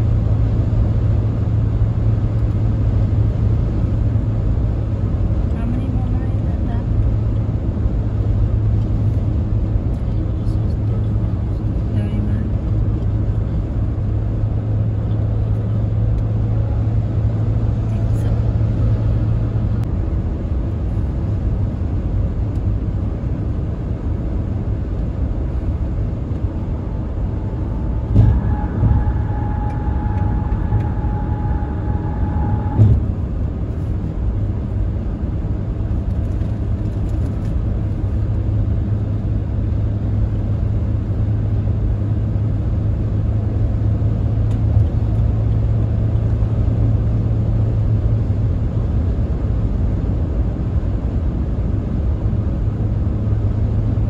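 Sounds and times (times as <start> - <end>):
road and engine rumble: 0.0 - 54.0
steady tone: 25.9 - 33.9
thump: 28.0 - 29.2, 32.6 - 33.2.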